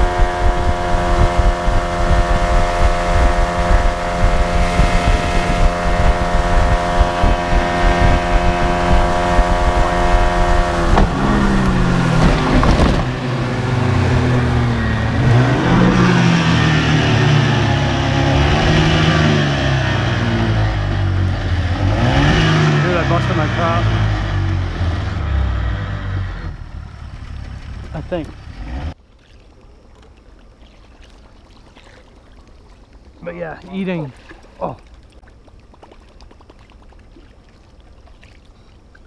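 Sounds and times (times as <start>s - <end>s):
outboard motor running: 0.0s - 39.0s
rushing wind and water: 0.0s - 39.0s.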